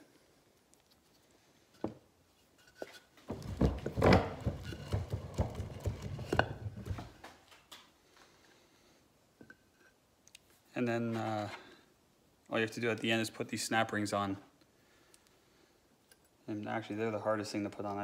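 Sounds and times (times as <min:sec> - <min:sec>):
wood knocking in metal vise: 0:03.3 - 0:07.1.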